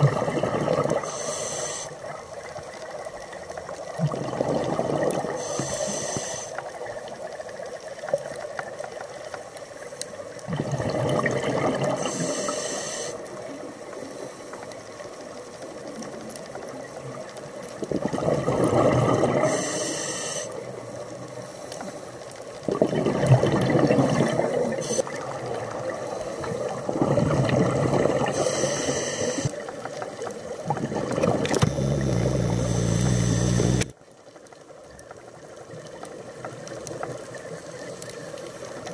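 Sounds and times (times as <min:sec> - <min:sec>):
exhaled bubbles gurgling: 0:00.0 - 0:08.0, 0:10.4 - 0:13.8, 0:15.8 - 0:19.8, 0:22.5 - 0:34.0
regulator inhale hiss: 0:01.0 - 0:02.2, 0:05.3 - 0:06.7, 0:12.0 - 0:13.4, 0:19.4 - 0:20.8, 0:24.8 - 0:25.2, 0:25.9 - 0:26.8, 0:28.3 - 0:29.6, 0:31.5 - 0:34.0.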